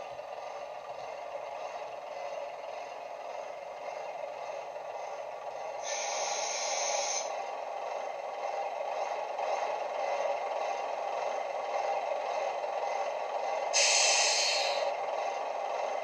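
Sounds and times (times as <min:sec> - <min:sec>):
diesel engine sound from small speakers: 0:00.0 - 0:16.0
air hiss: 0:05.8 - 0:07.3, 0:13.8 - 0:14.9.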